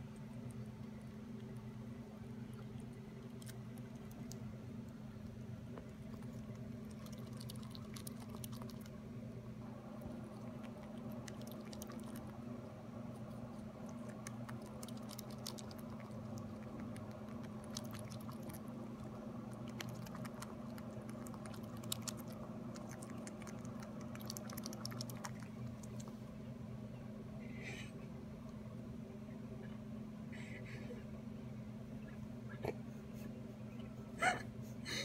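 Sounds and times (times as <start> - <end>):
squirrel chewing with wet clicks: 0.0 - 26.2
steady low hum: 0.0 - 35.0.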